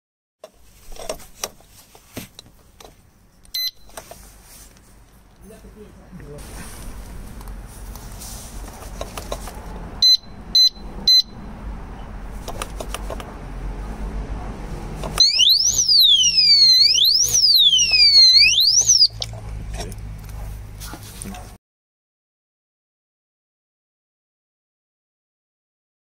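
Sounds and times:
alarm siren sweeping: 15.2s - 19.2s
short high beeps: 15.2s - 19.2s.

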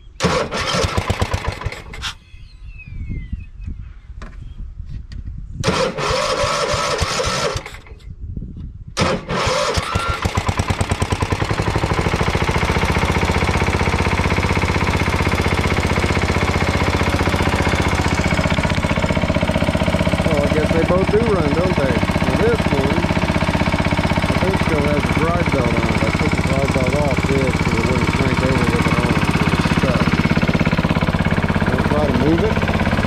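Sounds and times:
engine starter cranking: 0.2s - 2.2s, 5.6s - 8.0s, 9.0s - 33.0s
small engine running: 0.2s - 2.2s, 5.6s - 8.0s, 9.0s - 33.0s.

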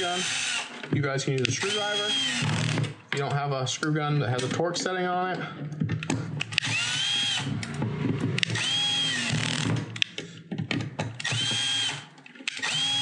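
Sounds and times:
cordless screw gun spinning: 0.0s - 2.9s, 6.4s - 7.8s, 8.4s - 9.8s, 11.2s - 13.0s
clicks: 0.8s - 1.9s.

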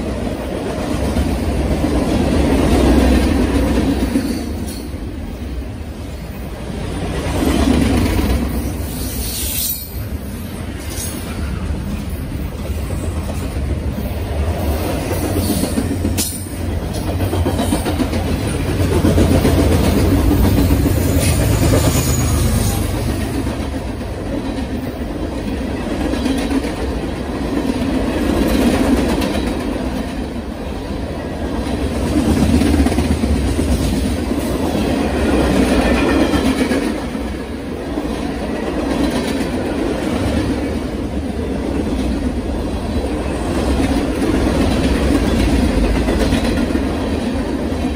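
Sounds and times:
freight train wheels clacking: 0.0s - 47.9s.

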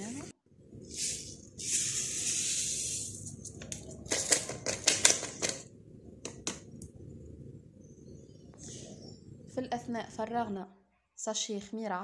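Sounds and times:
sugar pouring from paper sachet: 0.9s - 3.2s.

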